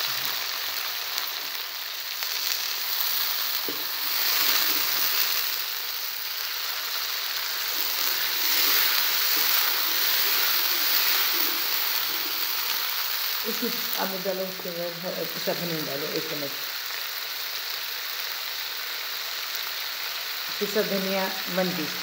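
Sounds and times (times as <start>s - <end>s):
food sizzling in hot oil: 0.0s - 22.0s
spatula stirring in wok: 3.5s - 5.6s, 7.5s - 13.0s.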